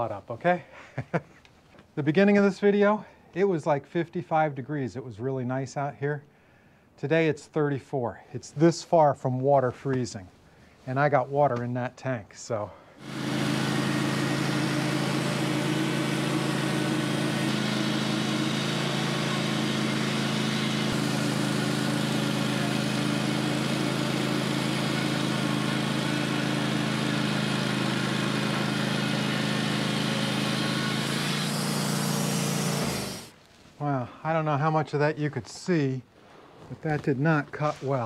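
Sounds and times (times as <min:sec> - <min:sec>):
saw blade hissing through wood: 0:13.0 - 0:27.5, 0:28.3 - 0:33.4
bandsaw mill engine hum: 0:13.0 - 0:33.4.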